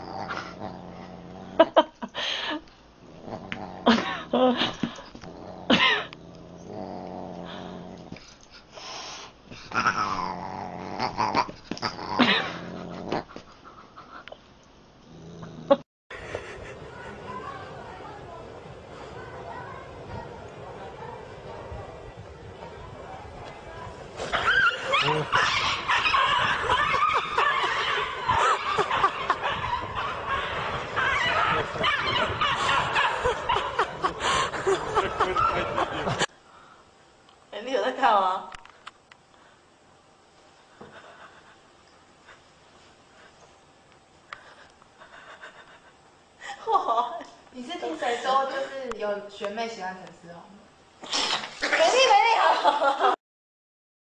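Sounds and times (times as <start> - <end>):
animal low rumbling: 3.0 - 8.2, 15.1 - 36.3
people snickering and laughing: 16.1 - 18.2, 23.7 - 36.3, 40.8 - 42.4, 44.4 - 47.4.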